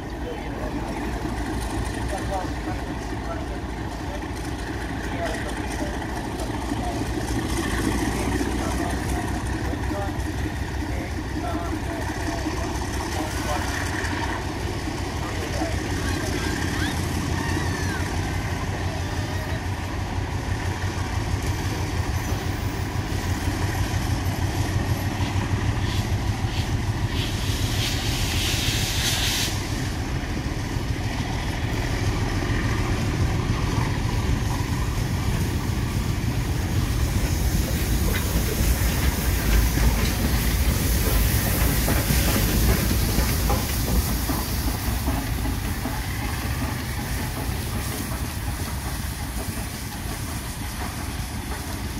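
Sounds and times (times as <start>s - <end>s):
steam hissing: 0.0s - 51.9s
train rumbling past: 0.0s - 51.9s.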